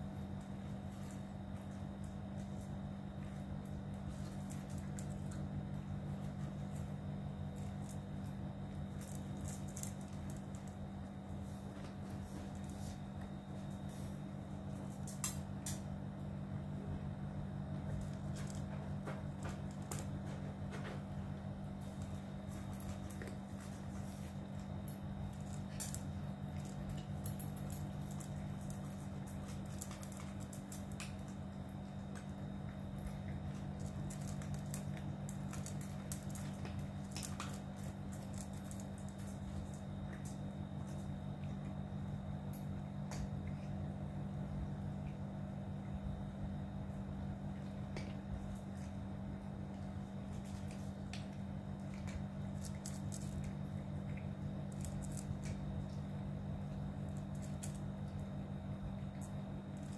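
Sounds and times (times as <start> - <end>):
cats crunching dry kibble: 0.0 - 59.9
steady low hum: 0.0 - 59.9
kibble clicking on metal bowls: 21.8 - 41.8, 49.8 - 56.1.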